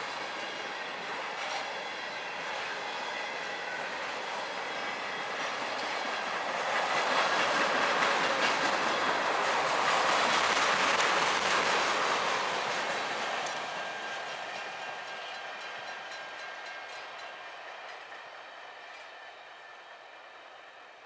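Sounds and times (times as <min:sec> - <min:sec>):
freight train rolling past: 0:00.0 - 0:21.0
train wheels clicking over rail joints: 0:03.7 - 0:19.1.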